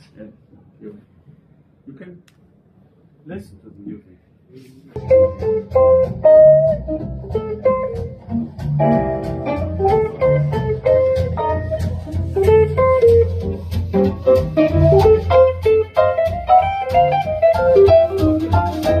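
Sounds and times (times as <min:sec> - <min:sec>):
guitar jazz over loudspeakers: 0:05.0 - 0:19.0
low bass line: 0:05.0 - 0:19.0.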